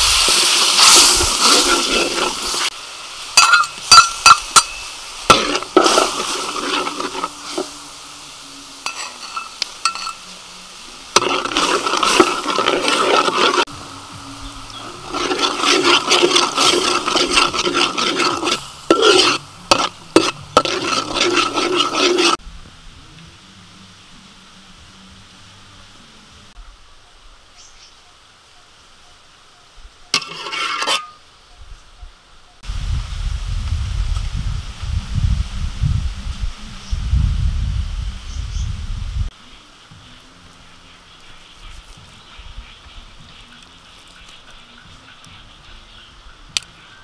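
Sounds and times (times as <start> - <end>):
metal spatula scraping a pan: 0.0 - 2.8, 3.4 - 7.8, 8.8 - 10.3, 11.1 - 13.7, 14.8 - 22.4, 30.2 - 31.2
sauce sizzling in a wok: 0.0 - 22.4.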